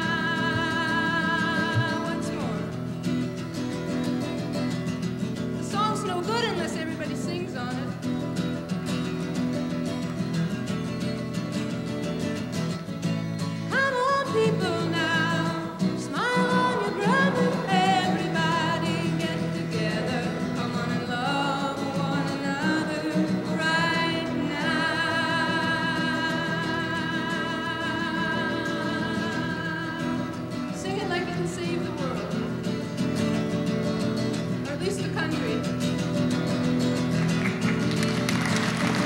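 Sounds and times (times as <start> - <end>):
woman singing: 0.0 - 3.4, 5.6 - 8.3, 13.6 - 33.0, 34.1 - 35.9
acoustic guitar strumming: 0.0 - 39.0.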